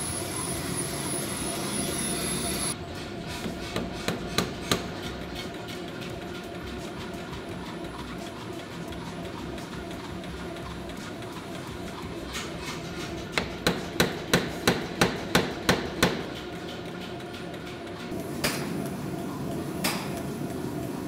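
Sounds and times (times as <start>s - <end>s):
hammer striking hot steel: 3.4s - 5.1s, 13.3s - 16.4s, 19.8s - 20.2s.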